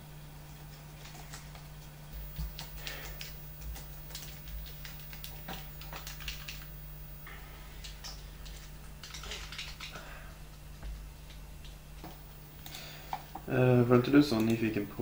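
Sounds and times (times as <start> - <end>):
steady low hum: 0.0 - 15.0
laptop keyboard typing: 2.2 - 6.7, 7.8 - 10.0, 14.2 - 14.8.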